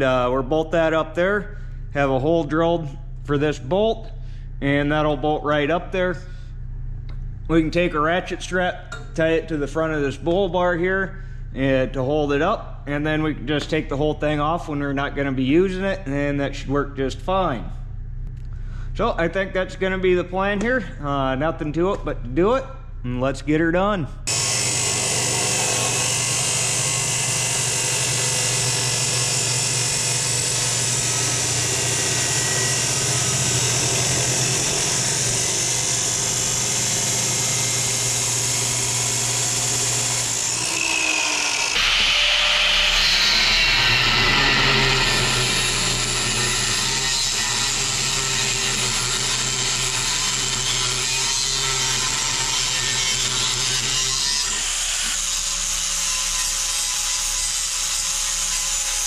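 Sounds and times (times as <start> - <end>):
angle grinder grinding steel: 24.3 - 59.0
chop saw cutting steel: 24.3 - 59.0.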